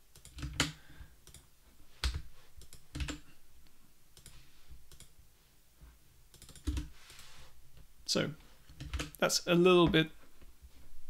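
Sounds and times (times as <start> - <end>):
keyboard keys clicking: 2.0 - 3.2.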